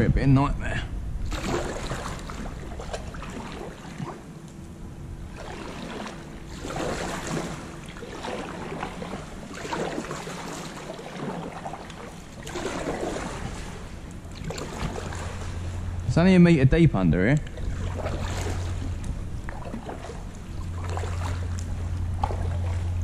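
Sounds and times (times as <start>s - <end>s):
paddle splashing in water: 1.3s - 4.3s, 5.3s - 15.8s, 17.4s - 23.0s.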